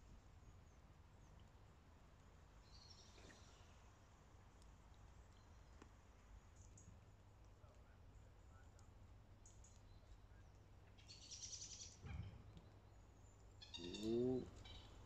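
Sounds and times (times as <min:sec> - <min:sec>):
small birds twittering: 0:02.6 - 0:04.2, 0:09.4 - 0:15.0
loud pitched bird call: 0:13.6 - 0:15.0.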